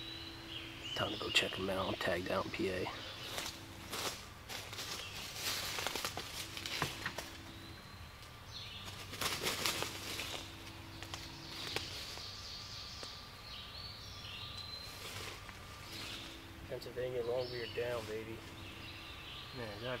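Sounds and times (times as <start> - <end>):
footsteps in dry leaves: 3.0 - 7.4, 8.7 - 12.6, 14.7 - 16.5, 17.7 - 19.0
turkey wing feathers flapping: 8.8 - 12.2.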